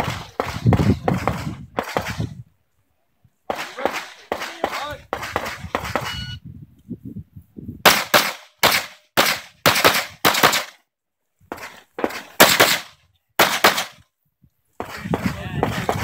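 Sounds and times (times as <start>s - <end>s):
pistol shots in quick pairs: 0.0s - 2.3s, 3.5s - 6.1s, 7.8s - 10.8s, 12.0s - 14.0s.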